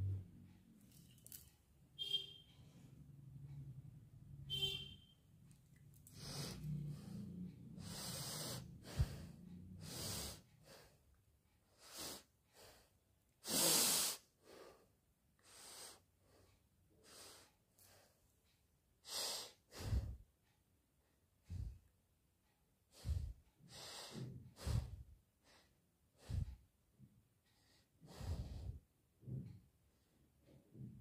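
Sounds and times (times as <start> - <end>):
woman sniffing: 13.4 - 14.4.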